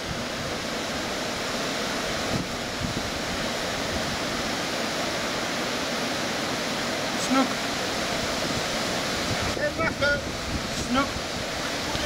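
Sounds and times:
water rushing at a weir: 0:00.0 - 0:12.0
wind buffeting microphone: 0:02.0 - 0:04.6, 0:07.8 - 0:12.0.

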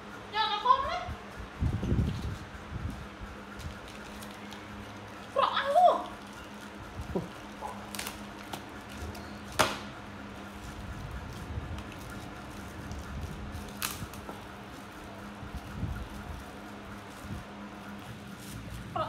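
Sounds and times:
plastic snack packet crinkling: 0:03.6 - 0:09.2.

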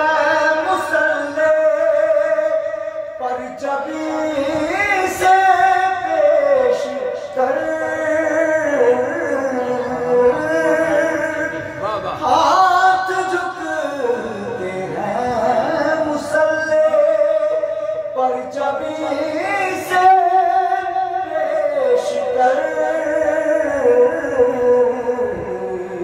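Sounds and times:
man singing into a microphone: 0:00.0 - 0:26.0.

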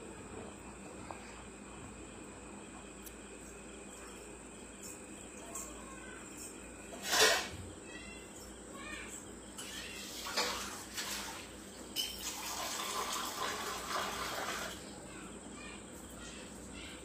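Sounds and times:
water running into metal cup: 0:10.0 - 0:14.8.

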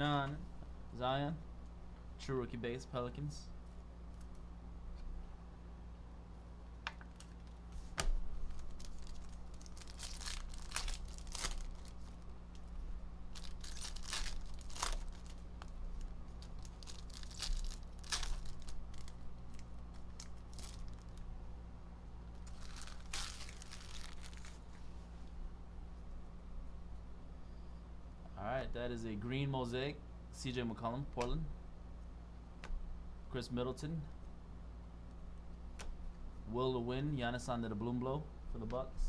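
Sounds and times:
steady low hum: 0:00.0 - 0:39.0
foil wrappers crinkling and tearing: 0:08.4 - 0:12.7, 0:13.3 - 0:21.2, 0:22.4 - 0:24.8.

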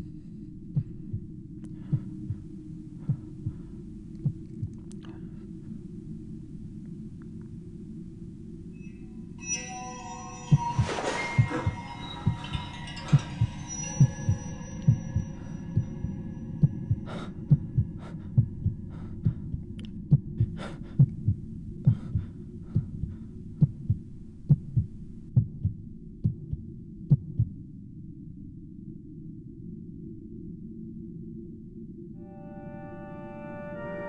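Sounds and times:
steady low hum: 0:00.0 - 0:09.4, 0:10.5 - 0:33.3
muffled heartbeat thumps: 0:00.7 - 0:05.0, 0:10.5 - 0:27.6.

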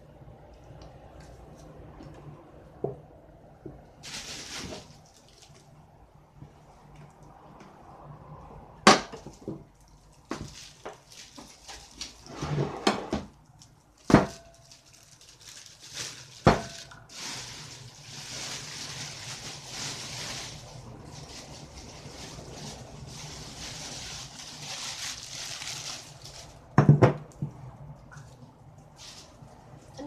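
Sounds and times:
plastic bags rustling: 0:04.0 - 0:05.9, 0:09.0 - 0:27.5, 0:28.1 - 0:30.0.

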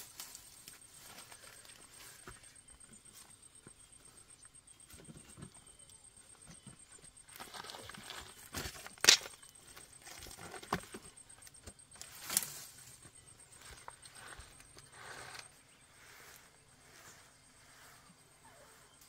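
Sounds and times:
rustling: 0:06.4 - 0:19.0.

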